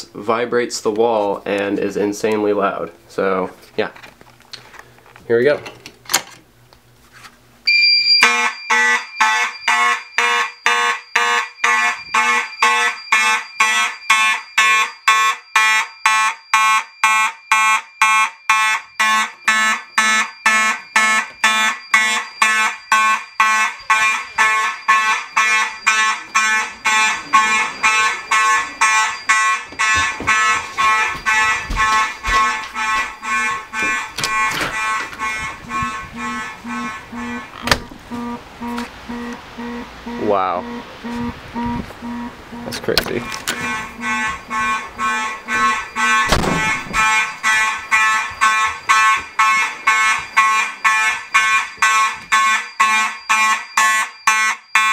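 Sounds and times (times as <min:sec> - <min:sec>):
fire alarm horns blasting: 0:07.7 - 0:54.9.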